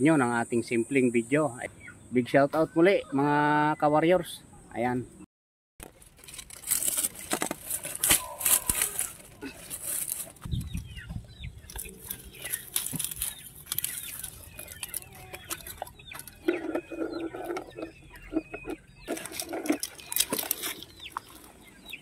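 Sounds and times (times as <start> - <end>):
dry leaves rustling: 5.8 - 17.2, 19.0 - 21.9
chicken clucking: 10.2 - 22.0.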